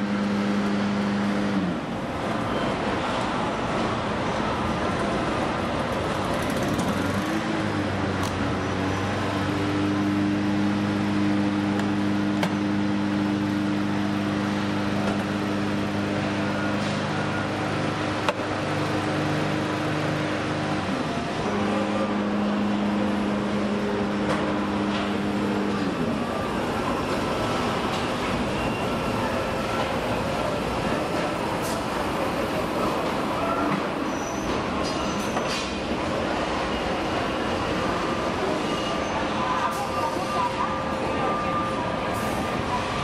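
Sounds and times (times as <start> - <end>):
machinery drone: 7.4 - 34.0.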